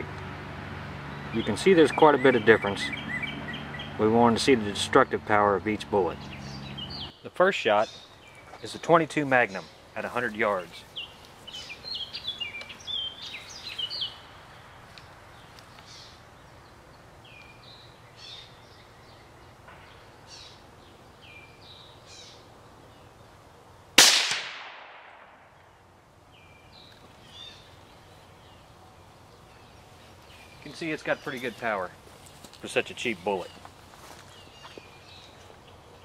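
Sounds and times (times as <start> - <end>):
birds singing: 0.0 - 23.8, 25.4 - 36.0
rifle shot: 24.0 - 25.6.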